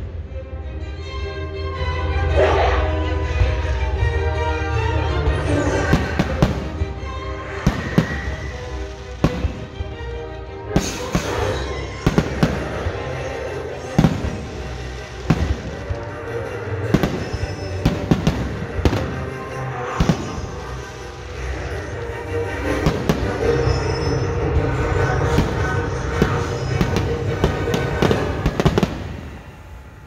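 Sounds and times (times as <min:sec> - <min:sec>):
loud show music: 0:00.0 - 0:29.3
fireworks bangs: 0:05.8 - 0:10.1, 0:10.7 - 0:30.0
firework rushing burst: 0:07.5 - 0:10.0, 0:10.7 - 0:21.9, 0:25.3 - 0:30.0.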